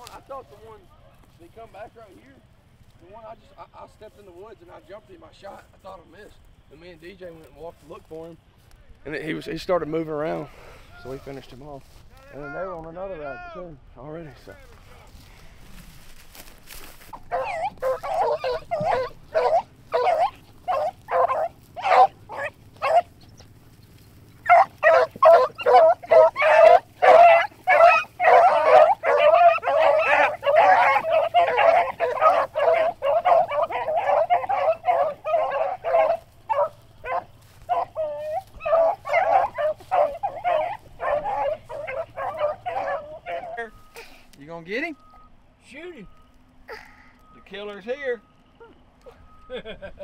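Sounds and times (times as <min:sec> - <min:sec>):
pack of dogs baying: 0:16.3 - 0:45.2.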